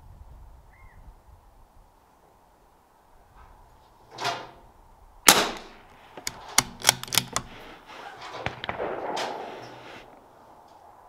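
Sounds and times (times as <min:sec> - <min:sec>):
soft bursts of noise: 0:01.4 - 0:11.0
rifle bolt clicking: 0:05.3 - 0:07.7
rifle shot: 0:05.3 - 0:10.2.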